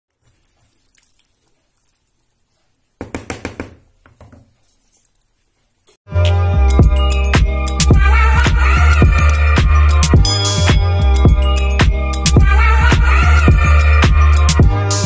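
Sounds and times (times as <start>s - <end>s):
sharp knocks: 3.0s - 4.5s
loud music with heavy beat: 6.2s - 15.0s.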